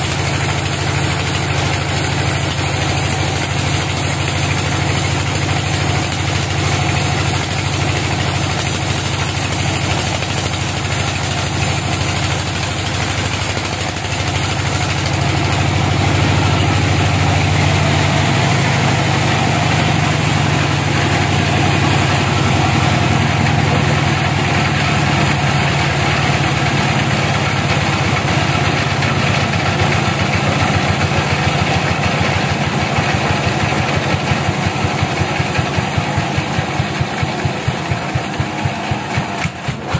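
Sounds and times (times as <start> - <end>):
saw blade cutting hiss: 0.0 - 30.8
sawmill machine drone: 0.0 - 39.9.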